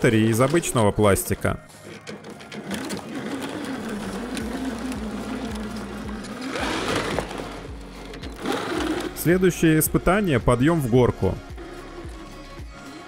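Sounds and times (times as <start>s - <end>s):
rc truck electric motor whining: 1.7s - 9.6s, 11.4s - 13.0s.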